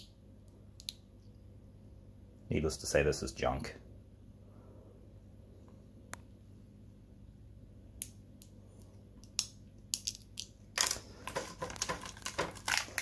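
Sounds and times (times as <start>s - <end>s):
cardboard packaging crackling: 10.8s - 13.0s.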